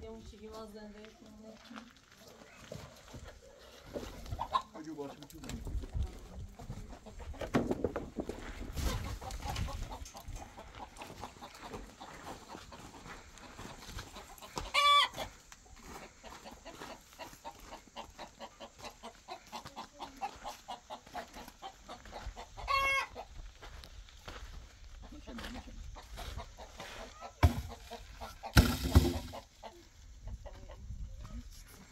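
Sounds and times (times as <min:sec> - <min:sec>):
chickens clucking: 0:01.3 - 0:23.9, 0:24.8 - 0:31.9
loud high chicken call: 0:14.6 - 0:15.3, 0:22.7 - 0:23.2.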